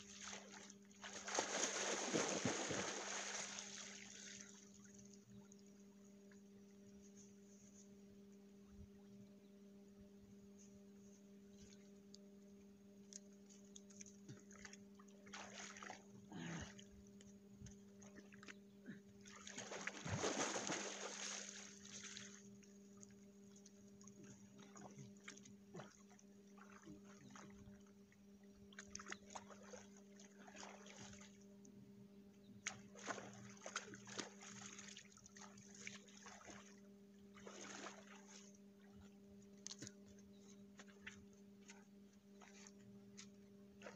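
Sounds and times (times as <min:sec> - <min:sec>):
water splashing: 0:00.0 - 0:04.9, 0:14.4 - 0:16.0, 0:19.2 - 0:22.5, 0:28.7 - 0:31.4, 0:32.7 - 0:36.8, 0:37.4 - 0:38.6
steady low hum: 0:00.0 - 0:43.9.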